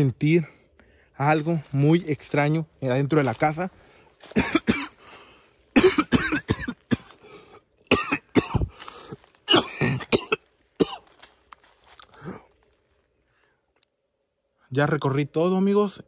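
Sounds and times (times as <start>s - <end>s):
man clearing his throat: 4.2s - 5.0s, 5.7s - 7.2s, 7.9s - 8.8s, 9.4s - 11.2s
man coughing: 4.2s - 5.1s, 5.7s - 7.3s, 7.9s - 11.2s.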